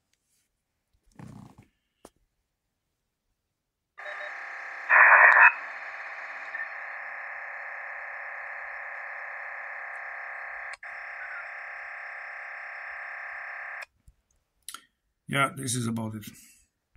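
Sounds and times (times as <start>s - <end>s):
thin steady tonal radio sound: 4.0s - 13.8s.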